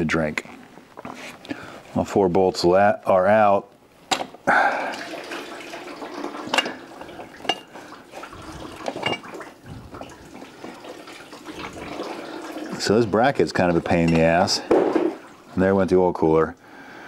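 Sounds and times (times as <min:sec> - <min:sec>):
oil trickling into drain pan: 0:04.6 - 0:15.8.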